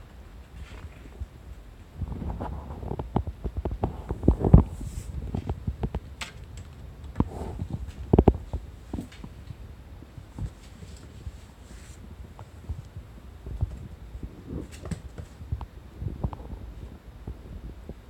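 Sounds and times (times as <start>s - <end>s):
kitten paws on cloth: 10.3s - 15.6s.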